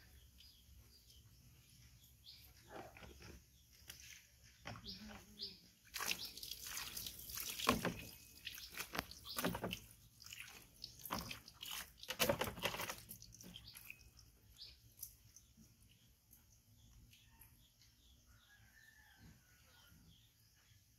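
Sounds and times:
dipper scooping and pouring water: 5.8s - 15.5s
hand splashing water: 5.9s - 13.2s.

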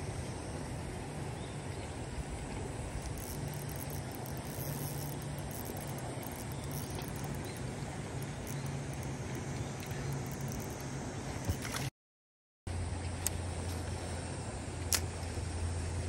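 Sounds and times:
low hum: 0.0s - 11.9s.

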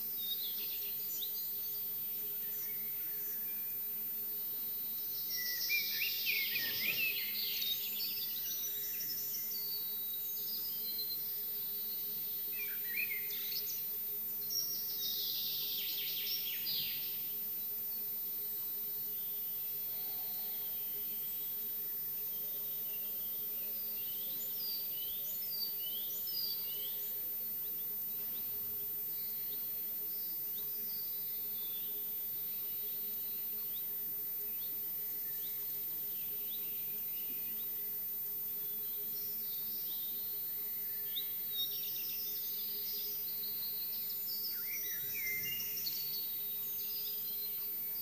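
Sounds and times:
songbirds singing: 0.0s - 48.0s.

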